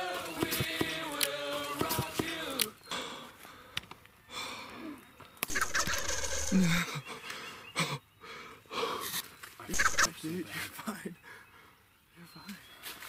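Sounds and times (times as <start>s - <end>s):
turkey gobbling: 5.5s - 6.7s, 9.7s - 10.2s.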